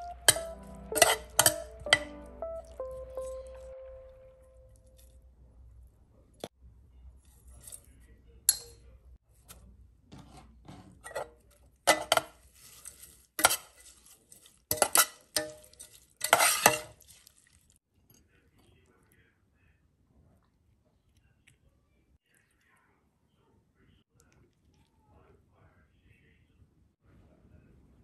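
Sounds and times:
metal spoon scraping a pot: 0.3 - 2.0, 10.1 - 17.3.

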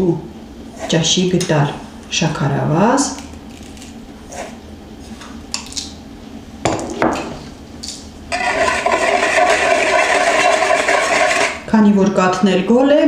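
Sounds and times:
wire whisk beating in bowl: 8.3 - 11.6.

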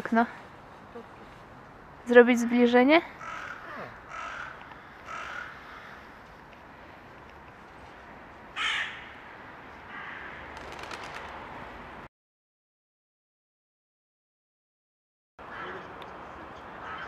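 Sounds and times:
crow cawing: 3.1 - 6.2, 8.6 - 9.2, 9.9 - 10.5, 16.8 - 17.0.

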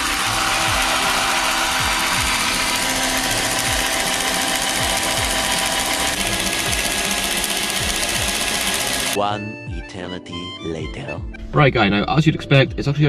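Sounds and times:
drill spinning gears rattling: 0.0 - 9.2.

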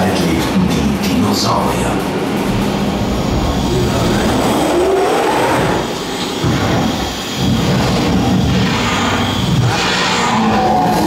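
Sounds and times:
loud rumbling: 1.4 - 11.0
tone gliding upward: 2.5 - 6.4.

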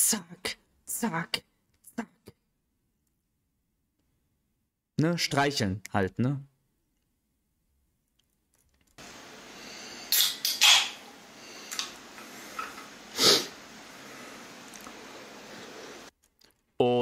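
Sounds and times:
faint steady hiss: 8.6 - 16.1
man breathing out or sniffing: 11.3 - 14.5.

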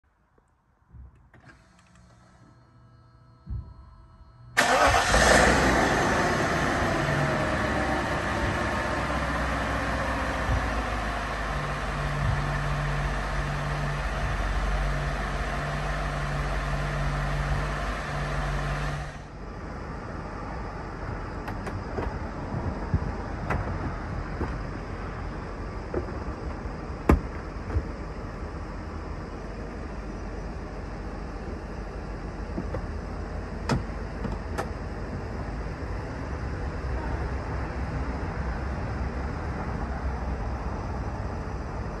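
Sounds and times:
car engine idling: 3.3 - 42.0.

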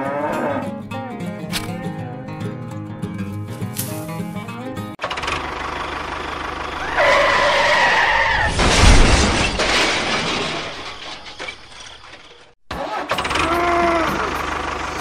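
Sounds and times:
squealing tone: 6.8 - 9.6
loud rushing crash: 6.8 - 11.7.

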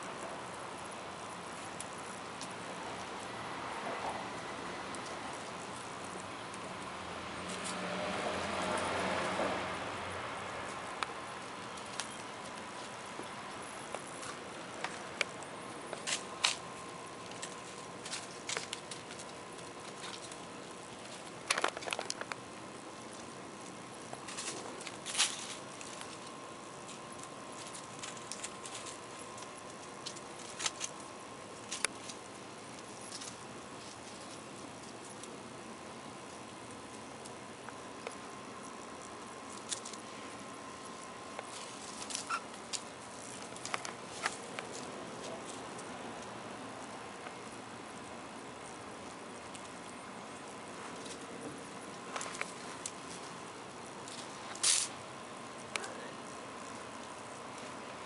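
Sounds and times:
steady outdoor hiss: 0.0 - 58.0
kitten paws pattering on concrete: 10.6 - 35.4.

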